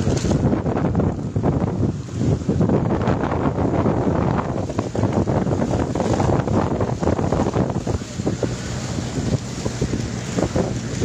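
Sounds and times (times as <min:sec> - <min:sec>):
fish rustling and clattering: 0:00.0 - 0:00.4
wind buffeting microphone: 0:00.0 - 0:11.0.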